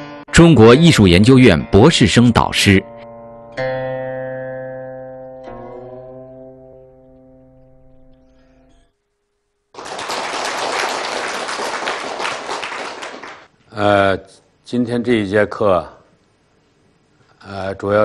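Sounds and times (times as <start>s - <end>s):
plucked string chords: 2.8s - 8.8s
audience applauding: 9.7s - 13.5s.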